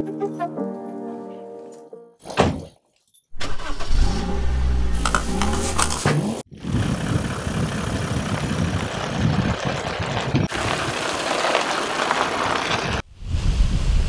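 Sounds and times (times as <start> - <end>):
engine idling: 6.6 - 13.0.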